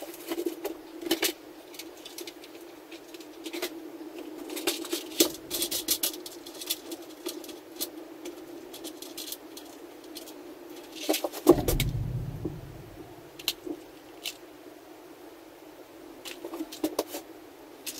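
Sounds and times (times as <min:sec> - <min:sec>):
knock with low rumble: 0:11.5 - 0:13.3
steady low hum: 0:11.5 - 0:13.5.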